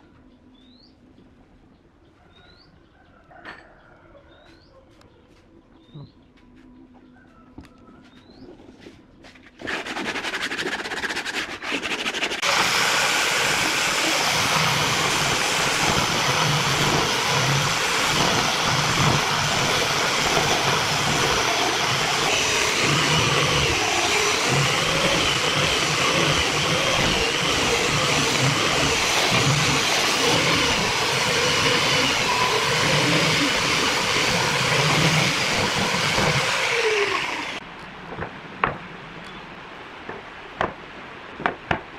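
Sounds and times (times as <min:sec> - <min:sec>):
faint bird chirps: 0:00.0 - 0:08.8
angle grinder sanding wood: 0:09.6 - 0:37.6.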